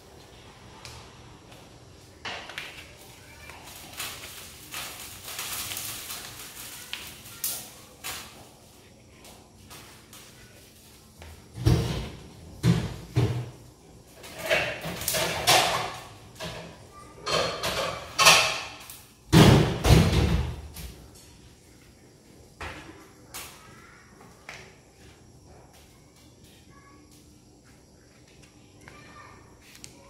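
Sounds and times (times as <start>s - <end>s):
clattering and rustling: 2.2s - 8.7s, 11.4s - 21.2s.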